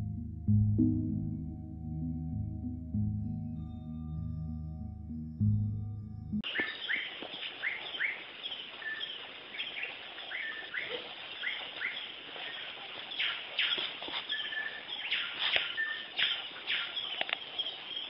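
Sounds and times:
small birds chirping: 6.4 - 18.0
steady background hiss: 6.5 - 18.0.

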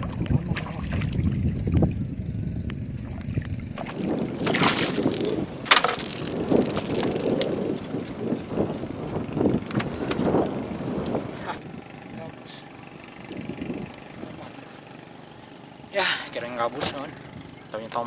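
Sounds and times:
wind on microphone: 0.0 - 5.7
water splashing: 3.8 - 6.6.

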